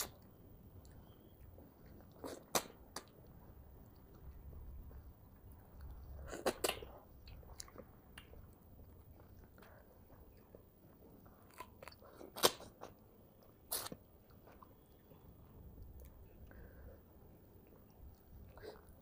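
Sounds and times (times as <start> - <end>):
wet chewing mouth noises: 0.0 - 15.2
sharp smacks or bites: 2.2 - 3.1.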